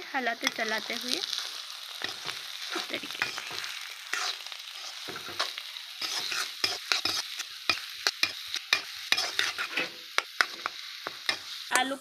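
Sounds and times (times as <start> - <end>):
light sizzle of frying: 0.0 - 12.0
spatula scraping metal pan: 2.0 - 11.5.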